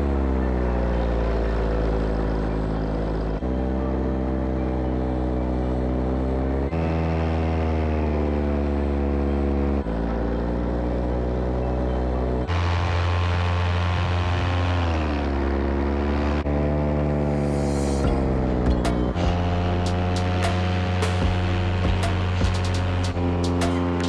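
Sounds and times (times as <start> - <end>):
paramotor engine and propeller: 0.0 - 24.0.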